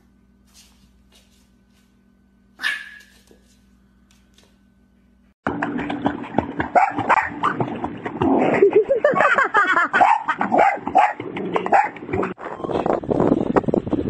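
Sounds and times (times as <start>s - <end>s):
dog barking and yipping: 2.6s - 3.3s, 6.7s - 7.6s, 9.9s - 12.0s
water splashing: 5.5s - 9.4s.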